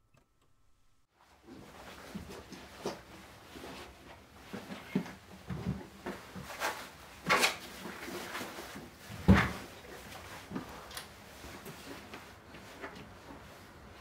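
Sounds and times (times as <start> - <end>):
objects knocking and rustling: 1.4 - 10.9.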